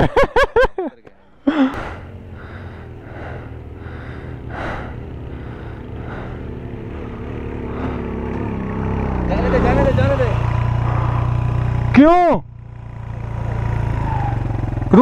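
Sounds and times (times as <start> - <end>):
heavy breathing: 1.2 - 8.5, 10.6 - 11.7
motorcycle engine at low revs: 1.5 - 15.0.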